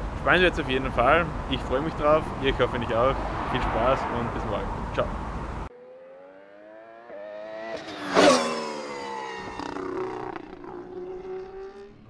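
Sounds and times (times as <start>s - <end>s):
racing engine fly-by: 5.7s - 12.0s.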